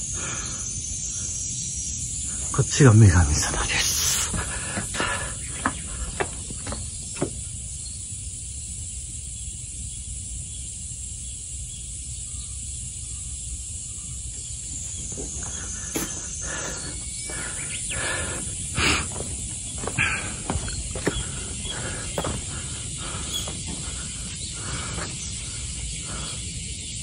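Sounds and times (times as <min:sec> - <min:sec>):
steady outdoor hiss: 0:00.0 - 0:27.0
footsteps on leafy dirt path: 0:14.6 - 0:26.3.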